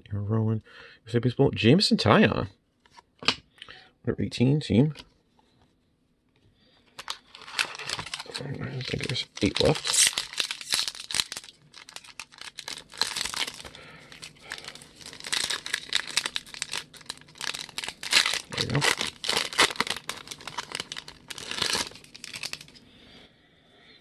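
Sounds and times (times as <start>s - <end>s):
card pack wrapper crinkling and tearing: 7.0s - 22.8s.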